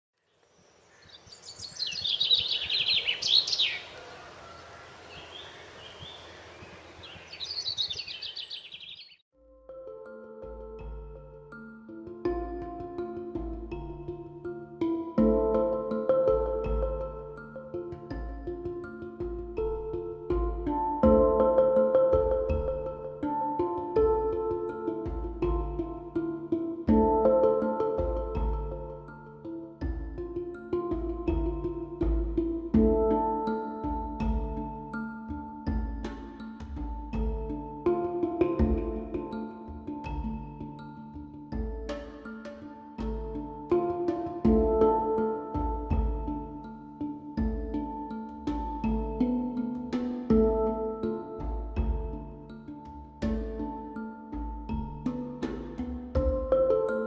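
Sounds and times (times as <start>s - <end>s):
faint bird chirps: 0.2s - 9.2s
songbird singing rapid high notes: 0.9s - 4.0s, 5.1s - 9.2s.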